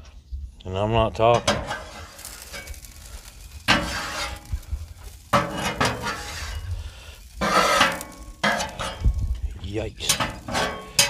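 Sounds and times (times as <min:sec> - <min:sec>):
metal spatula scraping griddle: 0:01.4 - 0:09.2, 0:10.0 - 0:11.0.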